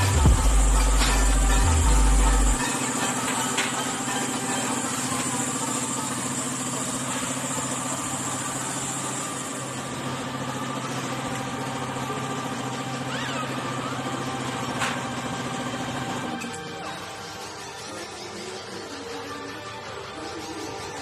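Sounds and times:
motorcycle engine idling: 0:00.0 - 0:16.3.

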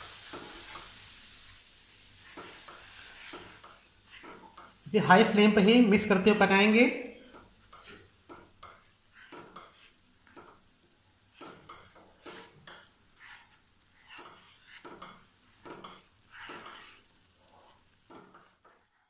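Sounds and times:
wooden spatula scraping frying pan: 0:02.2 - 0:04.8, 0:07.3 - 0:19.0.

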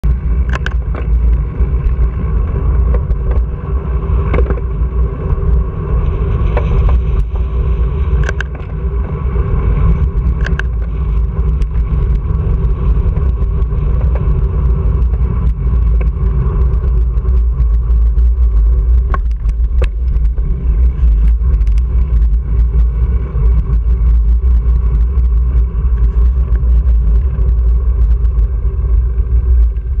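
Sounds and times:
wind rumble on microphone: 0:00.0 - 0:30.0
bike clicks and knocks: 0:00.2 - 0:03.5, 0:04.2 - 0:04.9, 0:06.4 - 0:07.4, 0:08.1 - 0:09.1, 0:10.2 - 0:12.4, 0:13.0 - 0:17.0, 0:18.9 - 0:22.8.

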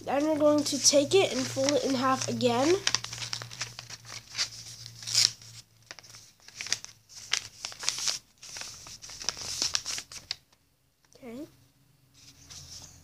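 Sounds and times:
paper rustling and crinkling: 0:00.1 - 0:10.5.

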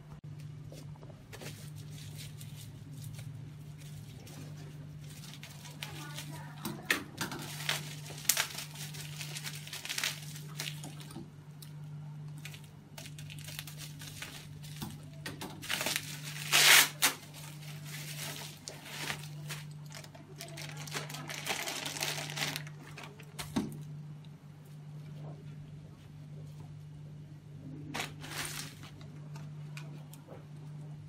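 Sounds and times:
plastic bags crinkling: 0:01.4 - 0:23.8, 0:27.9 - 0:29.1.

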